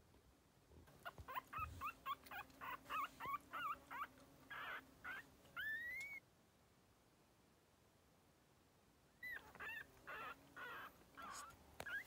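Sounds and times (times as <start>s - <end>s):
puppy squeaking and whimpering: 0.9s - 6.2s, 9.2s - 12.0s.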